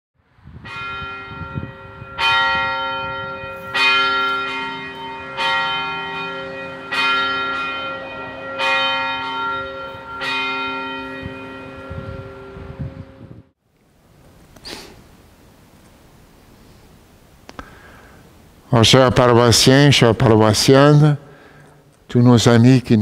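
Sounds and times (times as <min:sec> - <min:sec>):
church bell tolling: 0:00.6 - 0:13.4.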